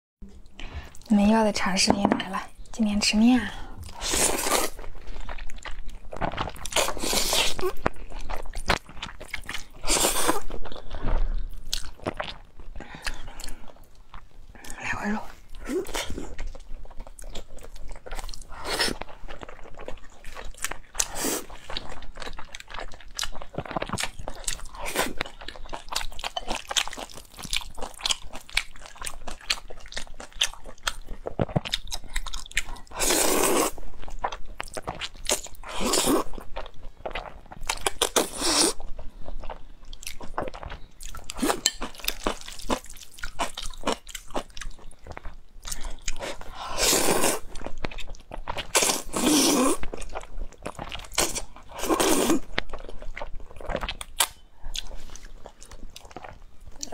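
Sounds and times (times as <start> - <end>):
wet chewing and lip-smacking: 3.8 - 14.8, 15.4 - 33.0, 33.6 - 56.9.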